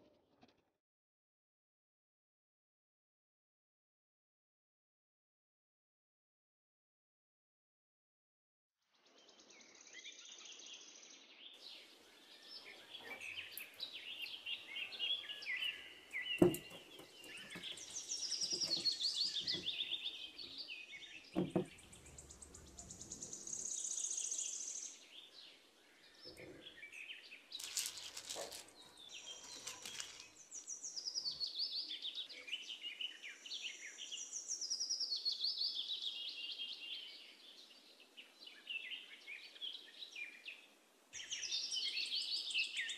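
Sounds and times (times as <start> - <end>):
birds chirping and singing: 9.2 - 42.9.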